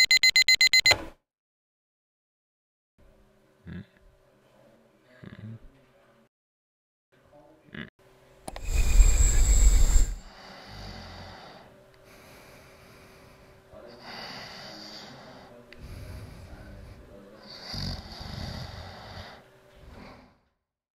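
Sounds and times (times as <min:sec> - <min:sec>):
person snoring: 0:08.6 - 0:11.7, 0:17.4 - 0:20.4.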